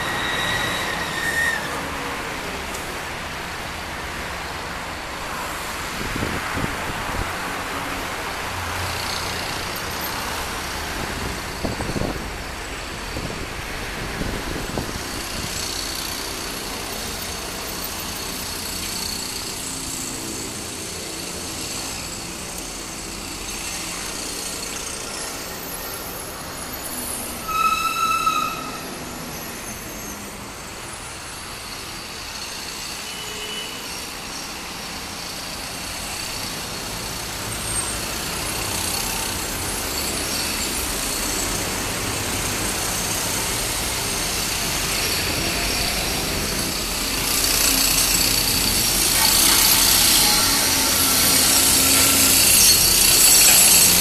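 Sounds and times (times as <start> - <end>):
vehicles passing: 34.1 - 54.0
traffic hum: 34.2 - 54.0.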